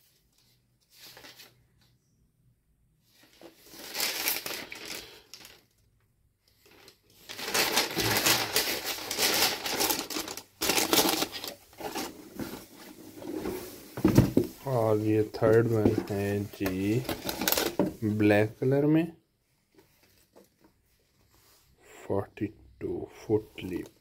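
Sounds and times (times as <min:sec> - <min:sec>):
tissue paper crinkling: 0:00.0 - 0:01.6, 0:03.2 - 0:05.6, 0:06.6 - 0:18.2.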